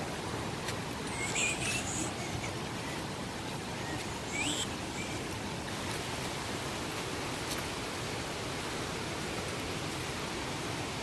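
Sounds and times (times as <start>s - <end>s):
falling water rushing: 0.0s - 11.0s.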